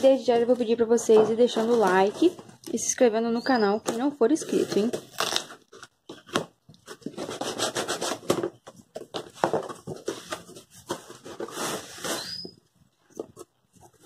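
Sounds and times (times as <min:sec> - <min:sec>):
short squeak: 0:12.0 - 0:12.7.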